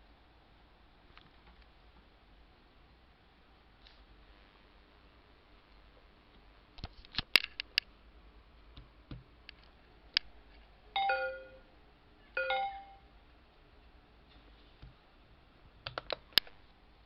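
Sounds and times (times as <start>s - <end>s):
computer notification chime: 11.0s - 11.7s, 12.4s - 13.0s.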